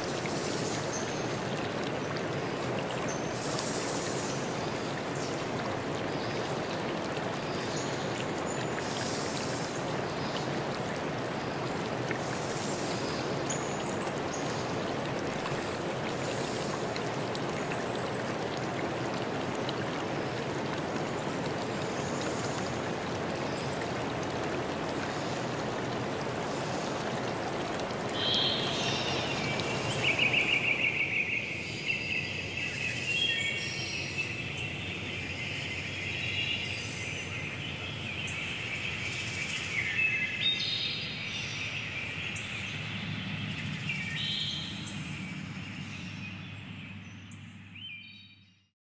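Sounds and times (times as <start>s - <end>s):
shallow stream flowing: 0.0s - 47.9s.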